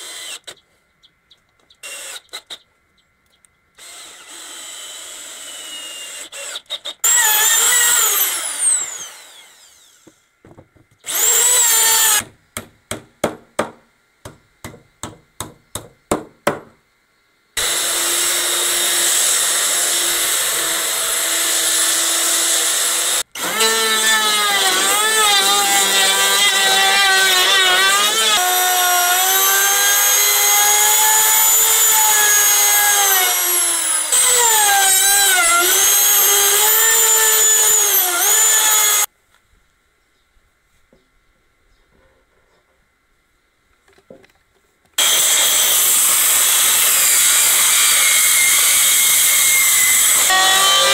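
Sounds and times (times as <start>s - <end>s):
wood router whining: 3.8s - 10.2s, 11.1s - 12.2s, 17.6s - 39.1s, 45.0s - 50.9s
cordless drill driving screws: 11.1s - 12.2s.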